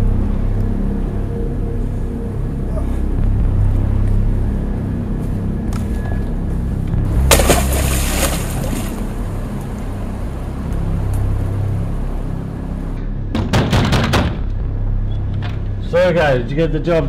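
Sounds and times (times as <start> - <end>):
low droning music: 0.0 - 17.0
heavy case splashing into water: 7.2 - 9.1.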